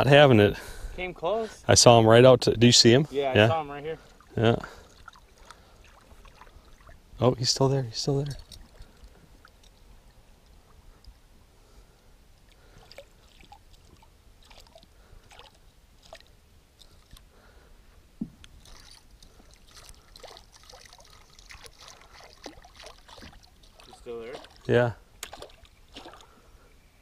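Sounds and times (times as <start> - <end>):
water sloshing and splashing: 3.7 - 7.1, 8.1 - 11.2, 12.4 - 17.4, 18.5 - 26.5.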